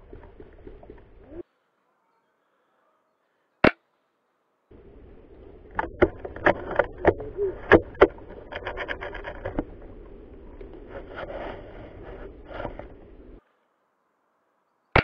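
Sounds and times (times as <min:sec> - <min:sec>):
leaves and twigs rustling: 0:03.3 - 0:15.0
foliage scraping against camera: 0:04.7 - 0:13.4
sharp clicks and knocks: 0:05.7 - 0:09.9.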